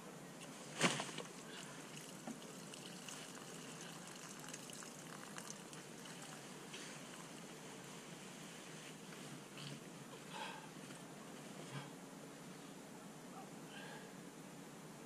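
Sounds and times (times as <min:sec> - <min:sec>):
faint wet handling noises: 0:00.4 - 0:11.9.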